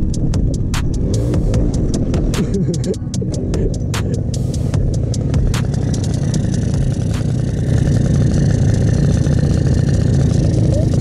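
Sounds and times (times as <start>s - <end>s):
rapid light ticking: 0.0s - 11.0s
scooter engine idling: 0.0s - 11.0s.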